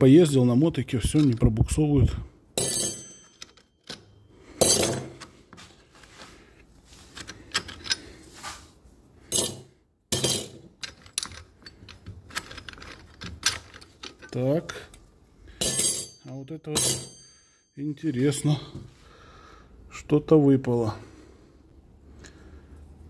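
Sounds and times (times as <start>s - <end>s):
metal clutch parts clinking: 2.6s - 5.3s, 7.1s - 8.2s, 10.2s - 17.4s.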